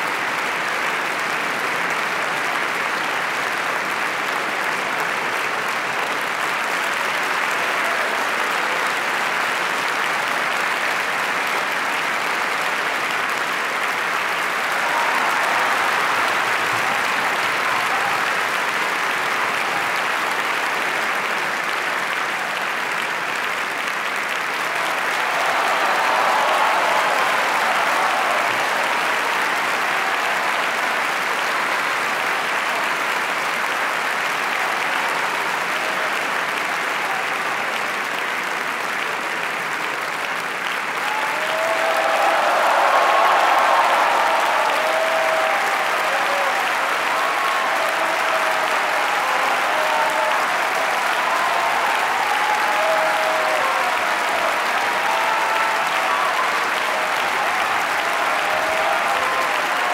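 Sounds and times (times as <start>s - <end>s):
audience applauding: 0.0s - 59.9s.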